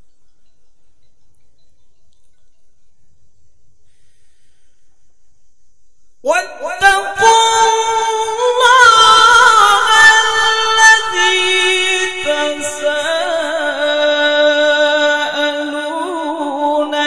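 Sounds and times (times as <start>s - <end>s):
man reciting melodically: 6.2s - 17.0s.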